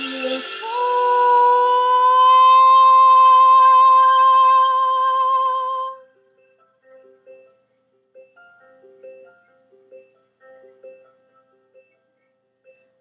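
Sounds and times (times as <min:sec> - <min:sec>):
woman singing long note: 0:00.0 - 0:06.0
soft instrumental notes: 0:00.0 - 0:13.0.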